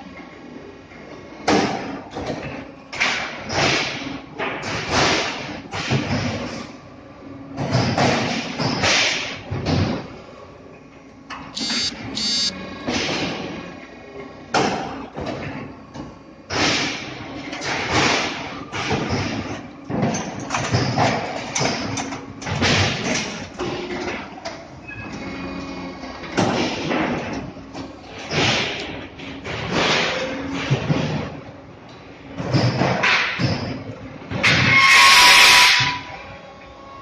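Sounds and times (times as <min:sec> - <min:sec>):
short high tones: 0:11.6 - 0:12.6
heavy press thuds and clanks: 0:16.5 - 0:24.1, 0:28.1 - 0:31.4.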